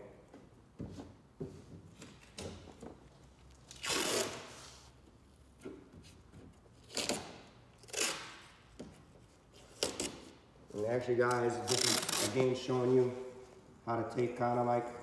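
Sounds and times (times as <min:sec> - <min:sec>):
masking tape ripping off roll: 0:03.6 - 0:04.8, 0:06.8 - 0:08.6, 0:11.4 - 0:12.6.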